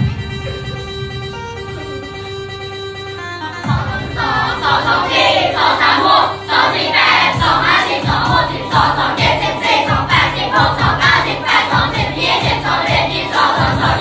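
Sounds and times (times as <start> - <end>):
dance music with steady beat: 3.5 - 14.0
students chanting in unison: 3.8 - 14.0.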